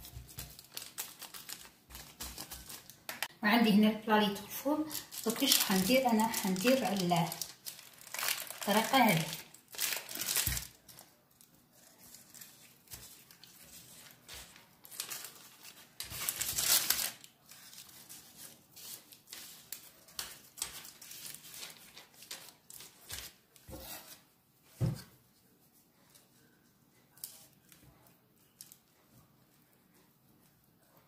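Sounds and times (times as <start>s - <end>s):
baking paper crinkling: 0.0s - 3.3s, 4.2s - 25.1s.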